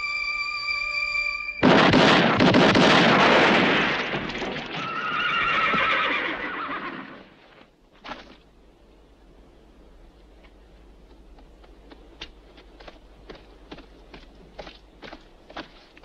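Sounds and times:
horses whinnying: 0:04.4 - 0:07.5.

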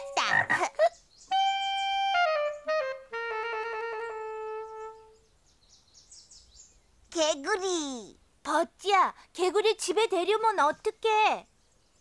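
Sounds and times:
cartoon woodwind music: 0:00.0 - 0:00.7, 0:01.3 - 0:05.2.

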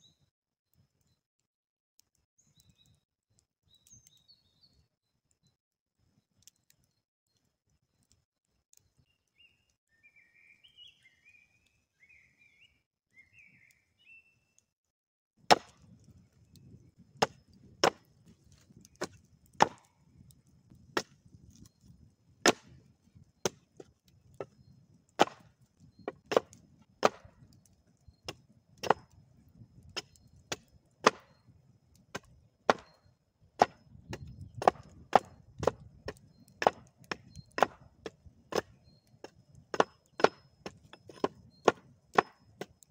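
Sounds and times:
hatchet chopping wood: 0:15.4 - 0:16.0, 0:17.2 - 0:19.9, 0:20.9 - 0:21.7, 0:22.4 - 0:22.8, 0:23.4 - 0:24.6, 0:25.2 - 0:27.5, 0:28.2 - 0:29.2, 0:29.8 - 0:31.4, 0:32.1 - 0:33.0, 0:33.6 - 0:42.8.

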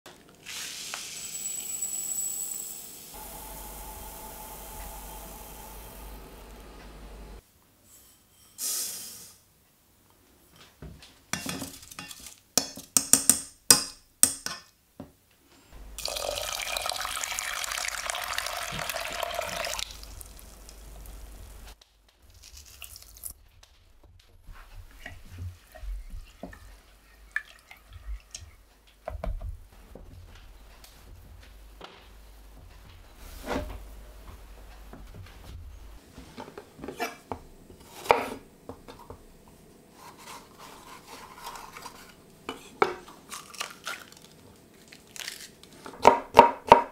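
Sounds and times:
water pouring into saucepan: 0:16.0 - 0:20.9, 0:26.1 - 0:28.6.

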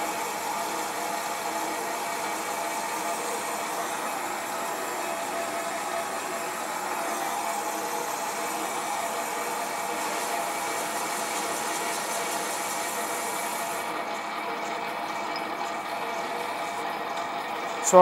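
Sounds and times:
cutting tool hiss: 0:00.0 - 0:13.9
lathe running: 0:00.0 - 0:18.0.

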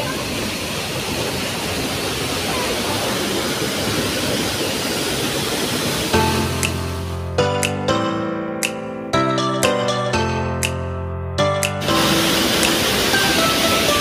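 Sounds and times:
waterfall rushing: 0:00.0 - 0:07.4, 0:11.8 - 0:14.0
background music: 0:06.2 - 0:14.0.

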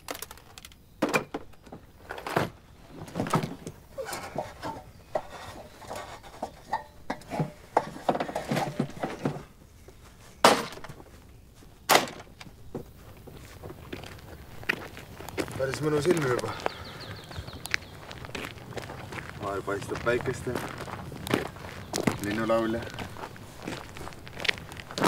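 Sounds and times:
footsteps on aluminium ladder: 0:00.0 - 0:09.6, 0:10.4 - 0:11.2
plastic toolbox clattering: 0:00.0 - 0:09.6, 0:10.4 - 0:11.0.

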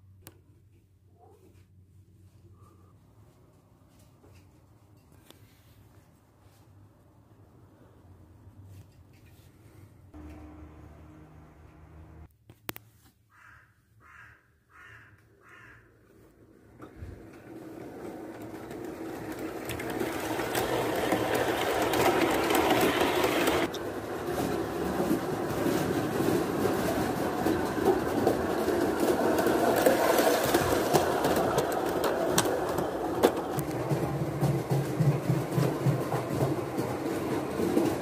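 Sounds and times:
model train running on track: 0:17.2 - 0:38.0.

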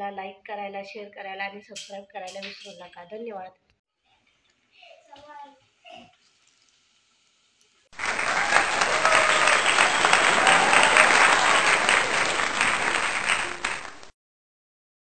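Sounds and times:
crowd applause: 0:08.0 - 0:14.1.

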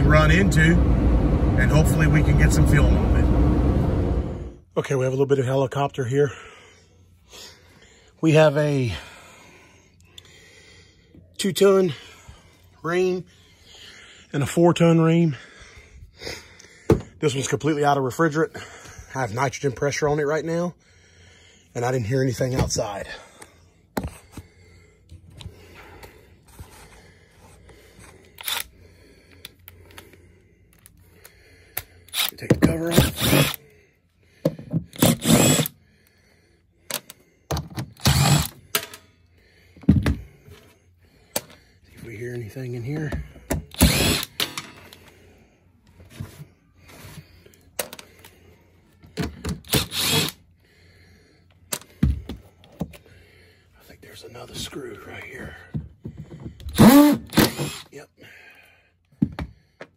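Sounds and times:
cordless drill driving screws: 0:28.4 - 0:28.6, 0:32.1 - 0:33.6, 0:34.9 - 0:35.7, 0:38.0 - 0:38.6, 0:43.7 - 0:44.4, 0:49.6 - 0:50.4, 0:56.8 - 0:57.9.

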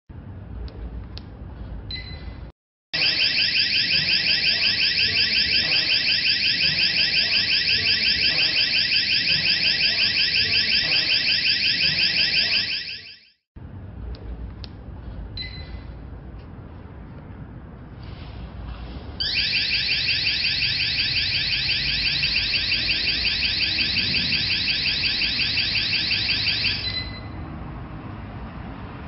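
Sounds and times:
alarm siren warbling: 0:03.0 - 0:13.4, 0:19.2 - 0:27.4.

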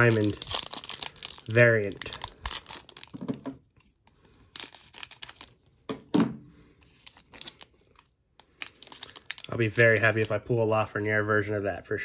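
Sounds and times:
foil wrapper crinkling and tearing: 0:00.0 - 0:05.8, 0:06.8 - 0:10.5.

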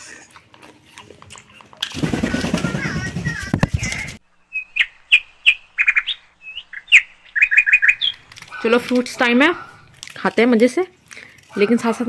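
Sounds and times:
parakeet chirping: 0:04.5 - 0:08.3.

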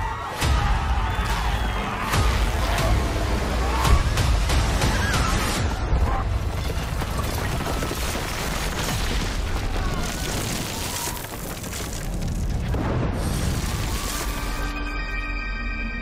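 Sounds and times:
rumble of explosions: 0:02.2 - 0:14.3.

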